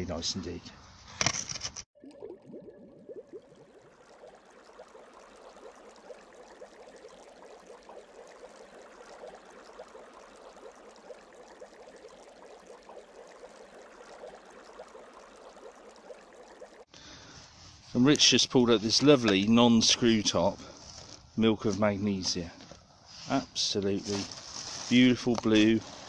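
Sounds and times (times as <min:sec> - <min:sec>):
water bubbling and fizzing: 0:02.0 - 0:16.9.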